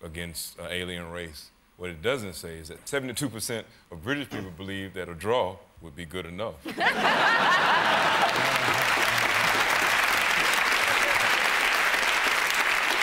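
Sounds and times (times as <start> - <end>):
audience laughter: 6.7 - 9.7, 10.7 - 11.5
audience applauding: 7.4 - 13.0.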